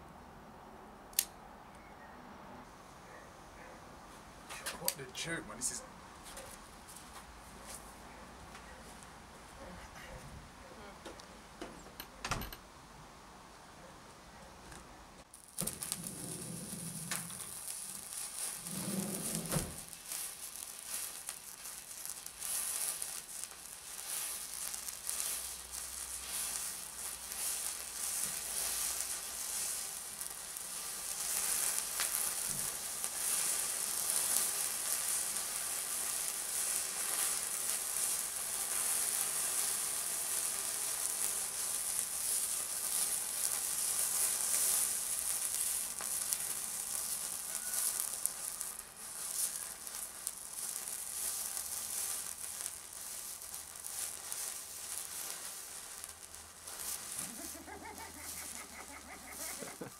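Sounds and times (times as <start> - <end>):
thermite fizzing and hissing: 15.3 - 59.9.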